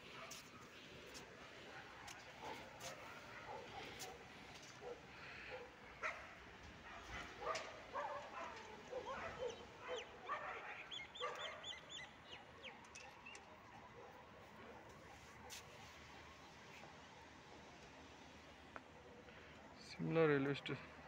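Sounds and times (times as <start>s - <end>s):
dog barking: 0.1s - 0.7s, 1.7s - 11.8s
bird chirping: 9.0s - 13.6s.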